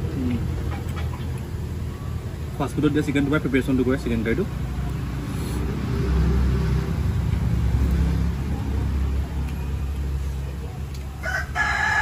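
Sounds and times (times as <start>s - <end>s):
vehicle engine rumbling: 0.0s - 12.0s
rooster crowing: 11.2s - 12.0s.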